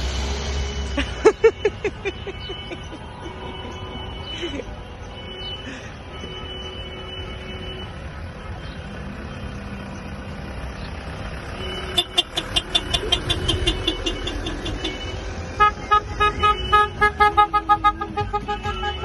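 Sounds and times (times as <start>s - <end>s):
engines and tyres rumbling: 0.0s - 19.0s
lower-pitched horn beeping: 0.4s - 8.0s, 11.6s - 19.0s
car horns beeping: 0.6s - 9.9s, 11.5s - 19.0s.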